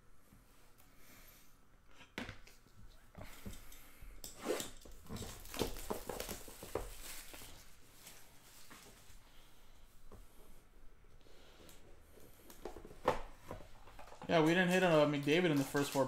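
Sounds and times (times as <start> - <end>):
cellophane crinkling: 14.3 - 16.0.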